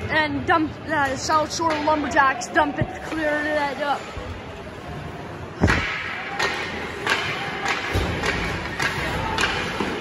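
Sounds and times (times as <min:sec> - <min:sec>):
hockey sticks striking puck: 0:01.0 - 0:02.3, 0:05.6 - 0:10.0
puck hitting the boards: 0:05.6 - 0:10.0.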